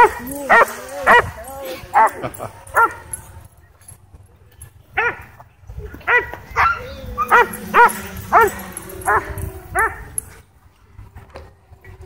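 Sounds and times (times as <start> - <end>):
dog barking: 0.0 - 1.3, 2.0 - 3.1, 6.1 - 10.1.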